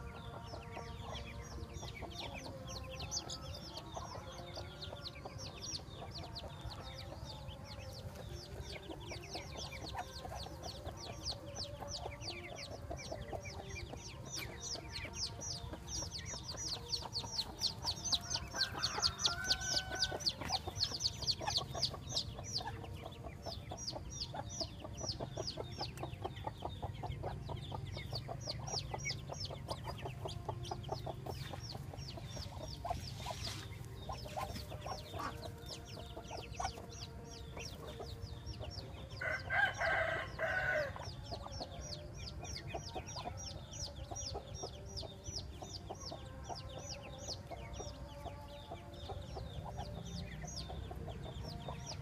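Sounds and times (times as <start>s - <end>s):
ducklings peeping: 0.0s - 52.0s.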